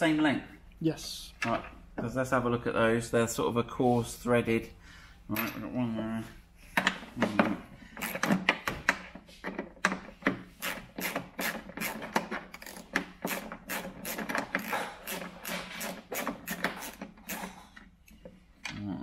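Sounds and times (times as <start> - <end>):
socket ratchet clicking: 10.6 - 18.2.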